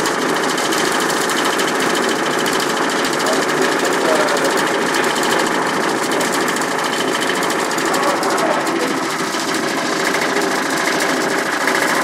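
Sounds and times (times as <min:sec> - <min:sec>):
buzzing rattle of metal cabinet: 0:00.0 - 0:12.0.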